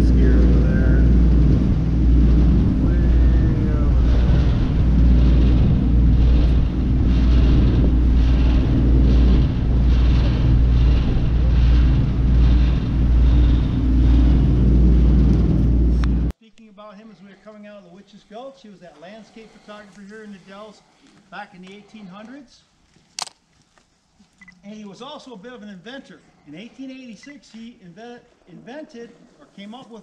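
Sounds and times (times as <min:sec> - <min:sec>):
wind buffeting microphone: 0:00.0 - 0:16.3
boat engine rumbling: 0:00.0 - 0:16.4.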